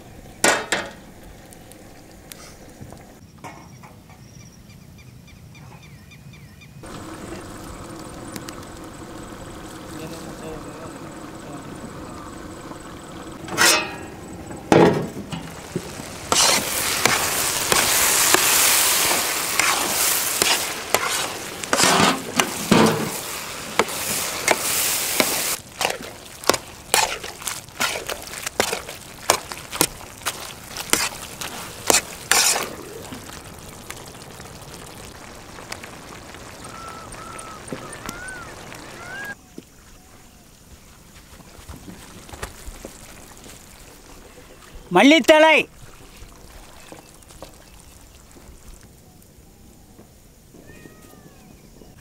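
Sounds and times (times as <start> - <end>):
food sizzling in a wok: 13.3 - 39.4
ladle knocking and scraping pan: 13.4 - 18.5, 19.6 - 23.2.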